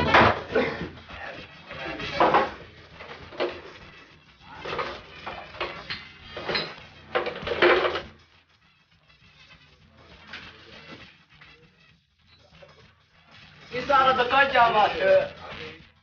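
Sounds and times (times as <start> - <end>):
glass bottles clinking: 2.0 - 3.6, 4.6 - 8.1.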